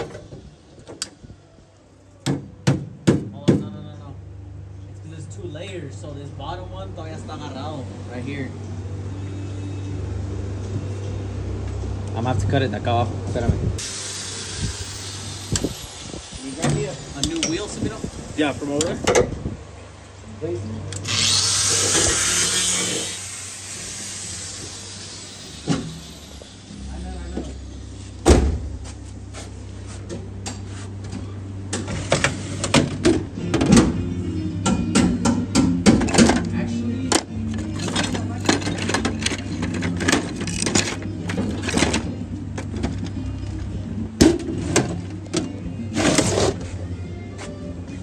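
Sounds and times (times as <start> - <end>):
steady low hum: 4.0 - 48.0
cutting tool cutting sheet metal: 21.0 - 24.2
metal discs clattering and scraping: 37.5 - 43.2.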